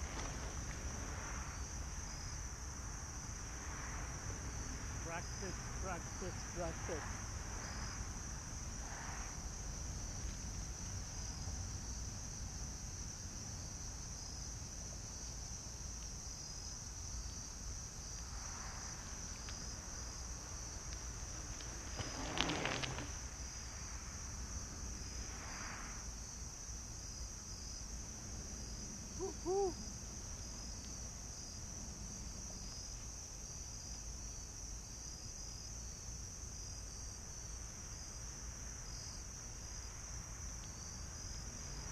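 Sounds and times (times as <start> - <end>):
bicycle rolling on gravel: 0.0 - 2.0, 18.7 - 24.2
crickets trilling: 0.0 - 41.9.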